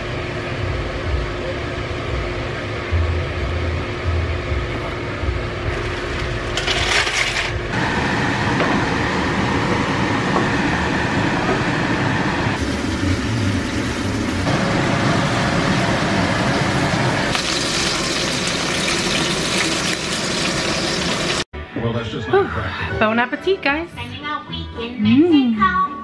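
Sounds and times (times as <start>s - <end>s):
chicken sizzling in grill pan: 16.4s - 21.4s.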